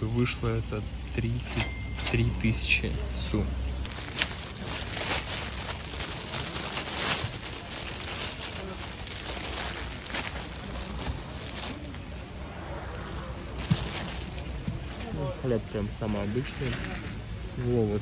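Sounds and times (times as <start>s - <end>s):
plastic bag crinkling: 2.0s - 12.1s, 12.9s - 15.2s.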